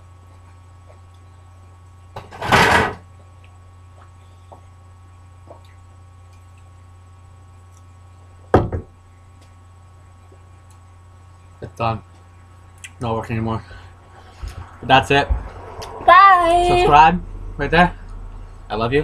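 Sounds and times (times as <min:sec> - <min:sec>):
low steady hum: 0:00.0 - 0:19.0
loud rush of noise: 0:14.1 - 0:18.8.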